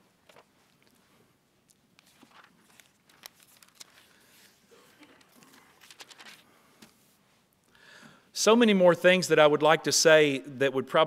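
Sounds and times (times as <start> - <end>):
thin pages rustling: 0.0 - 7.2.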